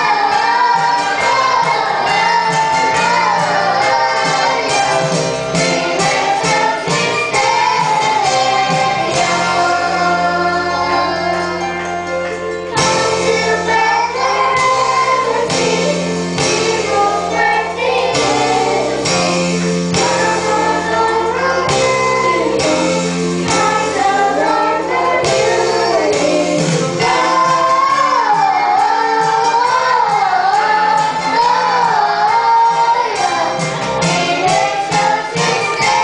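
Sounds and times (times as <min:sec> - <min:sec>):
children's choir singing: 0:00.0 - 0:36.0
instrumental accompaniment with bass: 0:00.0 - 0:36.0.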